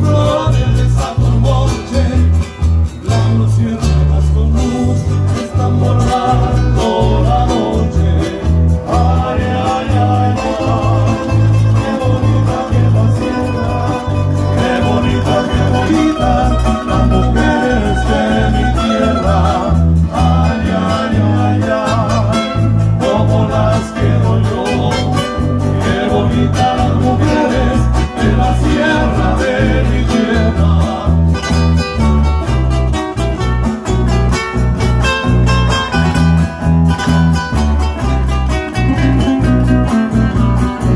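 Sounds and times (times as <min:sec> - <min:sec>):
acoustic guitars strummed: 0:00.0 - 0:40.9
pulsing bass line: 0:00.0 - 0:40.9.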